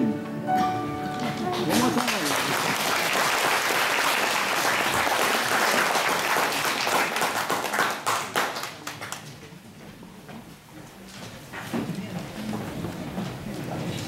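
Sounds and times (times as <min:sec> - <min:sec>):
audience applause: 0:01.2 - 0:09.4.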